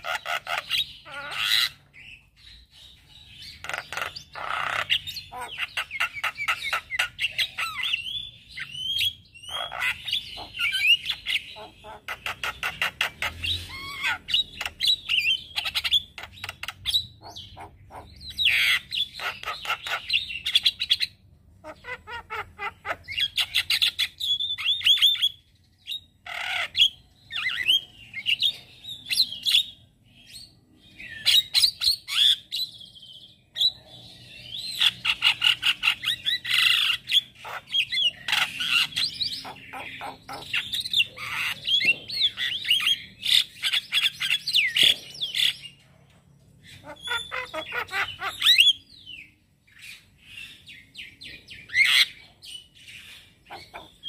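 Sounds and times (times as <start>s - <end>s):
myna bird singing: 0.0s - 54.0s.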